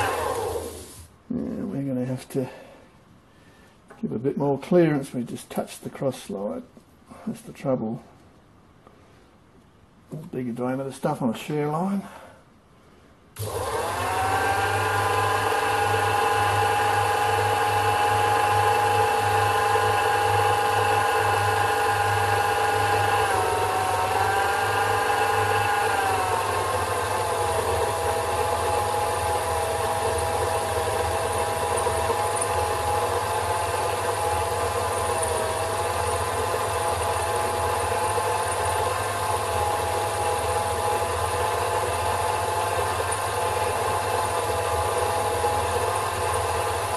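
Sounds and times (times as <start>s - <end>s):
lathe motor whine: 0.0s - 1.0s, 13.4s - 46.9s.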